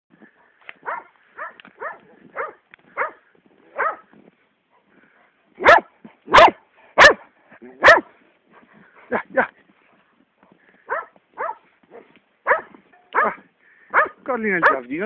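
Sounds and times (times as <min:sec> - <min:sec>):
dog barking: 0:00.8 - 0:04.1, 0:05.6 - 0:08.1, 0:10.9 - 0:14.8.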